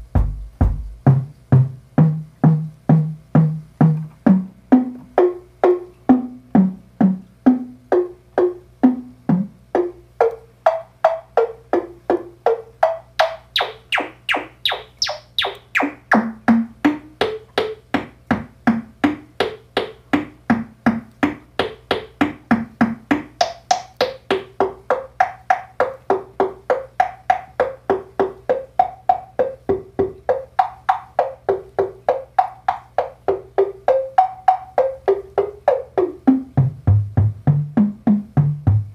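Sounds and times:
synthesizer percussive hits: 12.8 - 19.6.

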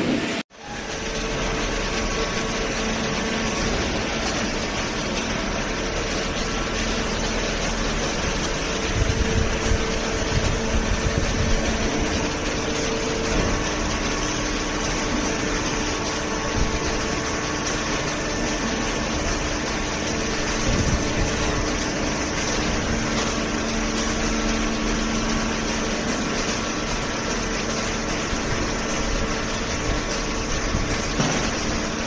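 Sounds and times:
baler machine drone: 0.0 - 32.0
held hum tones: 0.0 - 32.0.

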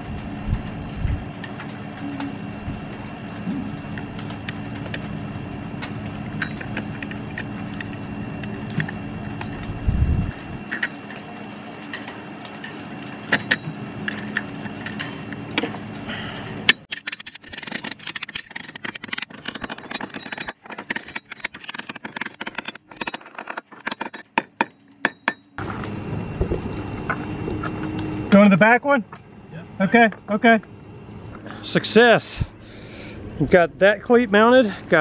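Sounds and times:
steady low hum: 0.0 - 35.0
metallic clicking and rattling: 16.8 - 25.4.

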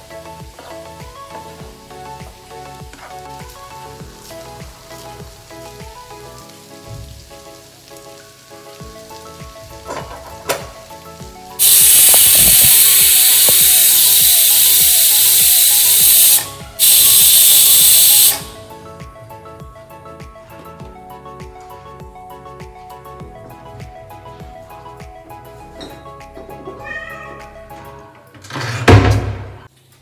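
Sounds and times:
pressure cooker hissing steam: 11.6 - 18.7.

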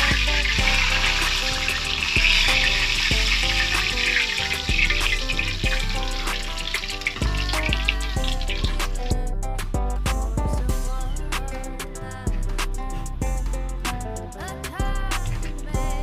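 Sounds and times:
fish sizzling in hot oil: 0.0 - 9.1
background music with steady beat: 0.0 - 16.0.

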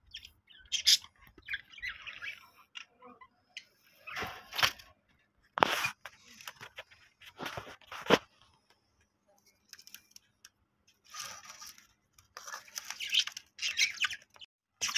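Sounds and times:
budgerigars chirping and squawking: 0.0 - 4.4, 12.7 - 14.9.

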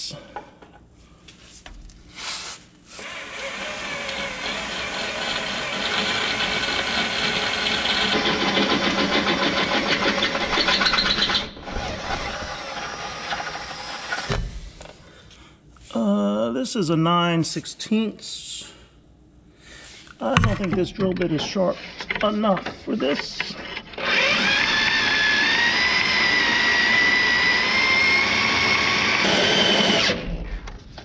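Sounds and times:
cordless drill grinding into metal: 3.0 - 14.3, 23.5 - 30.2.

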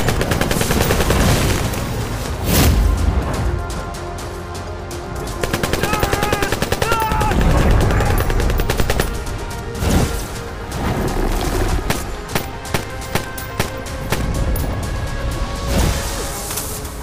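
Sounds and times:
assault rifle automatic fire: 0.0 - 1.6
dramatic background music: 0.0 - 17.0.

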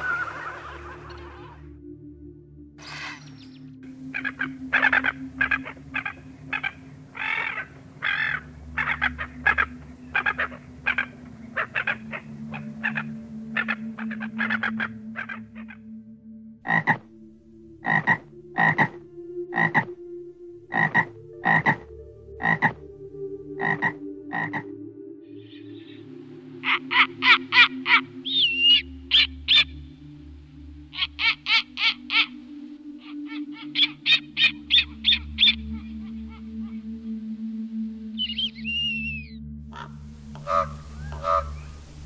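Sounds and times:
repeated animal calls: 2.9 - 15.9, 16.6 - 17.1, 17.8 - 20.0, 20.7 - 22.8, 23.5 - 24.7, 26.6 - 29.8, 30.9 - 32.4, 33.0 - 37.2, 38.2 - 41.8.

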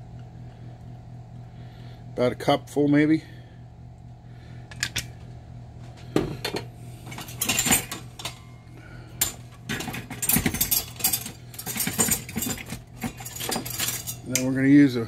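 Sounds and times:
kitchen things clattering: 6.2 - 8.5, 9.2 - 14.5
utensils clinking against bowl: 6.5 - 8.5, 9.2 - 14.5.

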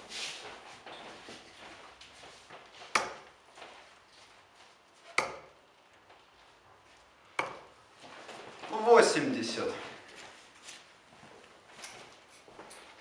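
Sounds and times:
darts striking dartboard: 2.9 - 3.4, 5.2 - 5.6, 7.4 - 7.7.

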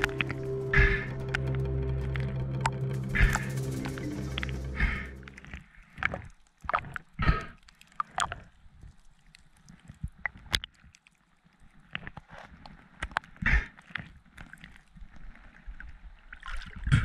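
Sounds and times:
water gurgles: 4.8 - 17.0
water sloshing and splashing: 5.4 - 17.0.

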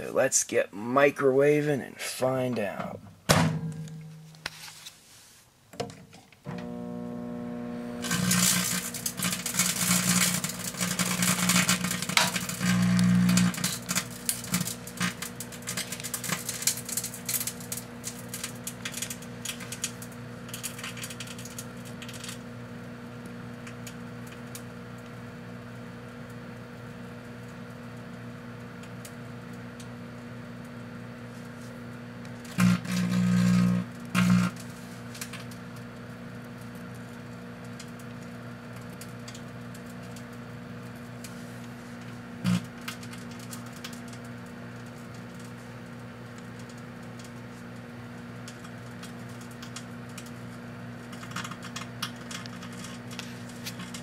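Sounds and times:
microwave oven humming: 6.4 - 54.0
electrical arcing crackling: 7.8 - 27.9, 32.4 - 41.4, 42.0 - 54.0.

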